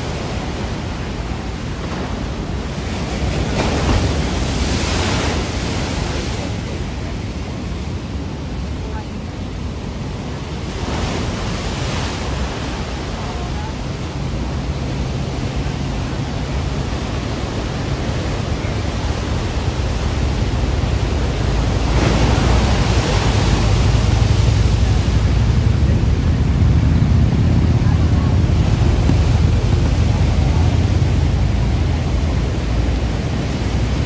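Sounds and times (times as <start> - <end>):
heavy ocean surf: 0.0 - 34.0
wave crashes: 20.8 - 34.0.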